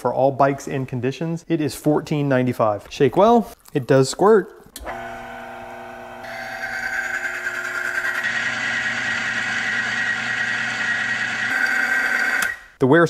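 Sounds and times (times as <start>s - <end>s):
electric motor running: 4.8s - 12.6s
high grinding whine: 4.8s - 12.6s.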